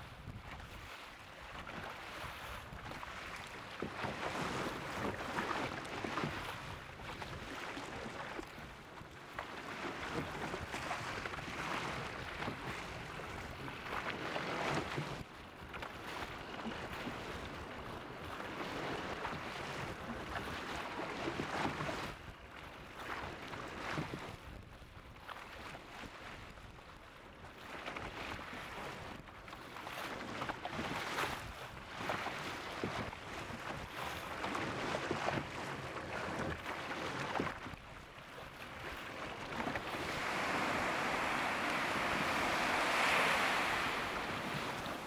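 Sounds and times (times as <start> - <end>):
wind gusting: 39.4 - 45.0.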